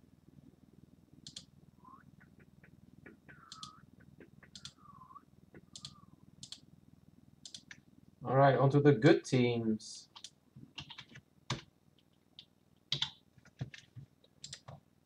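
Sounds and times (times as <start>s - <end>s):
computer mouse clicks: 1.2s - 1.5s, 2.2s - 4.8s, 5.5s - 6.6s, 7.4s - 7.8s, 10.2s - 14.8s.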